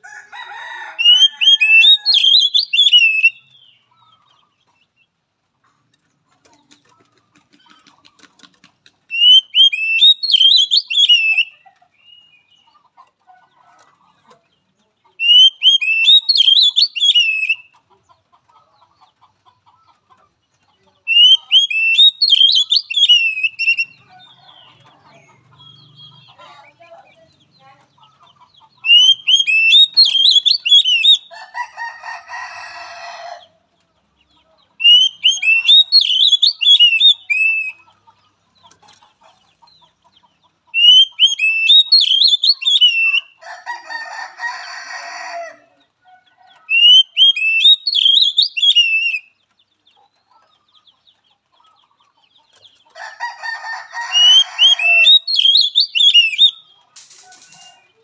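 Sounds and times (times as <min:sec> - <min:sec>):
harsh rasping bird call: 0:00.5 - 0:03.4
bird singing warbling phrases: 0:01.0 - 0:05.0, 0:06.4 - 0:12.8, 0:14.0 - 0:17.9, 0:20.6 - 0:31.6, 0:34.2 - 0:43.9, 0:46.5 - 0:58.0.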